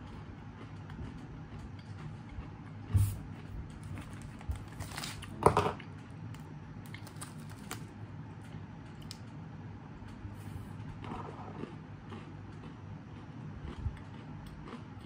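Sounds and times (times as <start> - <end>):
person chewing crunchy cookie: 0.0 - 5.4, 10.5 - 15.0
plastic packet crinkling: 3.9 - 5.4, 6.9 - 7.9.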